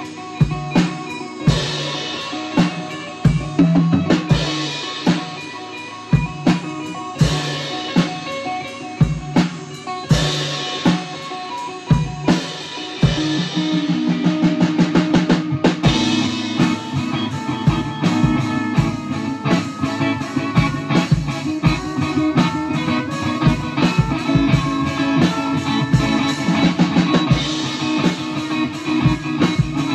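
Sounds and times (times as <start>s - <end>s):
drum kit: 0.0s - 29.9s
electric guitar: 0.0s - 29.9s
trumpet: 16.5s - 28.0s.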